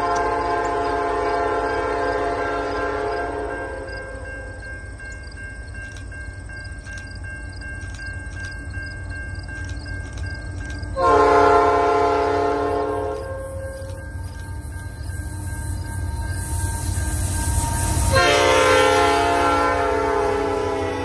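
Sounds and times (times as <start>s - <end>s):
train air horn blast: 0.0s - 3.6s, 11.0s - 14.0s, 17.8s - 21.0s.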